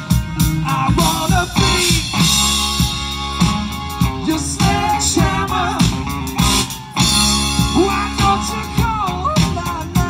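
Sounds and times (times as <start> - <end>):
drums: 0.0 - 10.0
electric guitar: 0.0 - 10.0.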